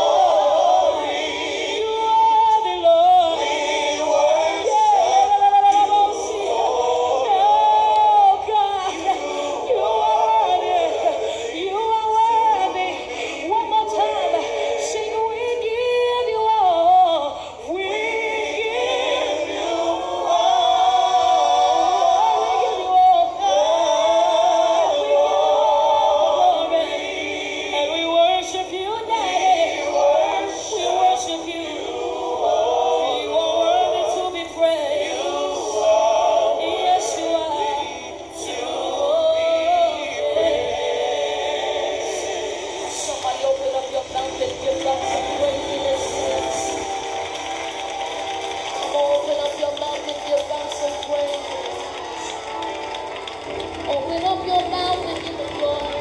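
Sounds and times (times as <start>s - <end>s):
woman singing into microphone: 0.8s - 3.5s, 7.1s - 18.9s, 22.1s - 23.8s, 27.7s - 31.8s, 33.1s - 35.0s, 43.0s - 47.1s.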